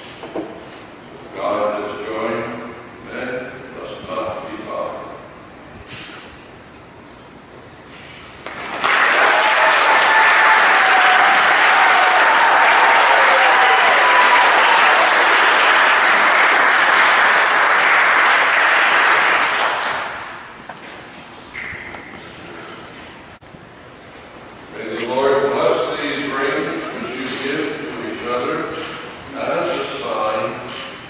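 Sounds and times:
congregation applauding: 8.4s - 20.5s.

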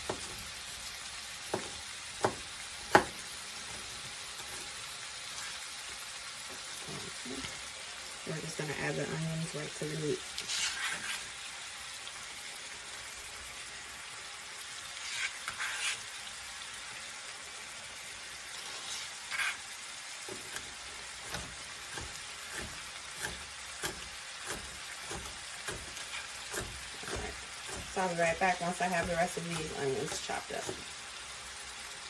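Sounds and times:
knife chopping on a cutting board: 0.0s - 0.4s, 1.4s - 3.2s, 20.3s - 27.9s
meat and onion sizzling: 0.0s - 32.0s.

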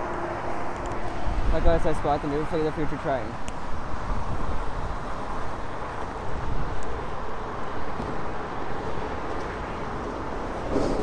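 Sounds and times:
distant city traffic: 0.0s - 11.0s
wind on microphone: 3.6s - 11.0s.

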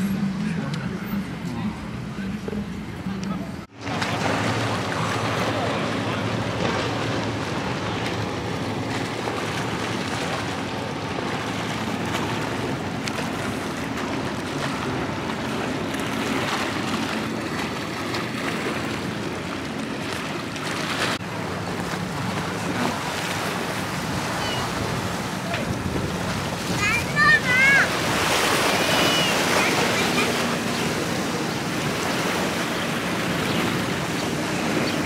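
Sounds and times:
small waves lapping on rocks: 3.2s - 35.0s
wind blowing across microphone: 22.1s - 35.0s.

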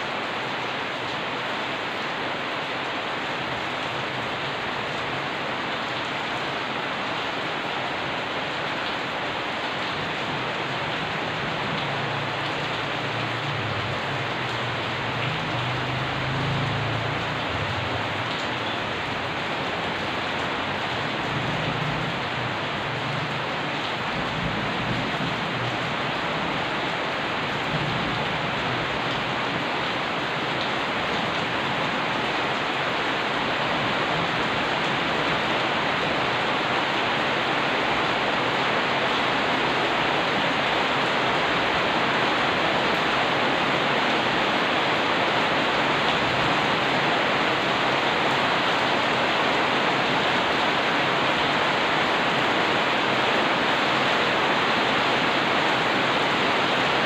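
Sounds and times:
rain falling on a street: 0.0s - 57.0s.

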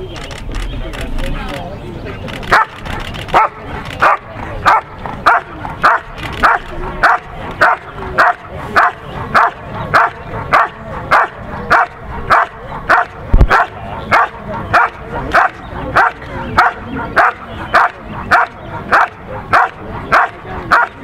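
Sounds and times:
dog barking: 2.5s - 21.0s.

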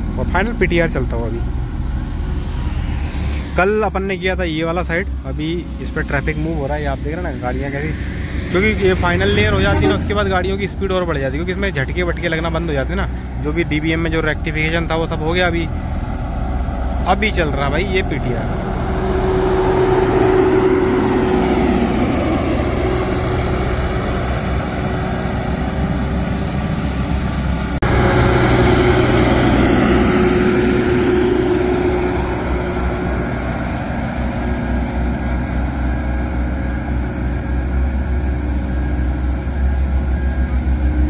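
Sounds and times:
road roller diesel engine droning: 0.0s - 41.0s.

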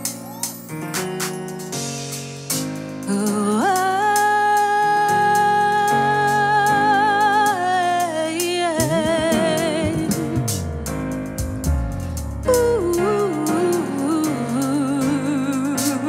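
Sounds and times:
live band playing: 0.0s - 3.5s, 8.4s - 14.9s
hi-hat ticking: 0.0s - 16.0s
woman singing with vibrato: 3.1s - 10.6s, 12.5s - 16.0s.

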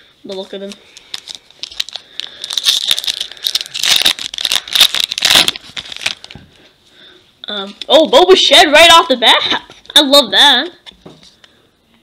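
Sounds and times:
card pack wrapper crinkling: 0.6s - 6.4s.

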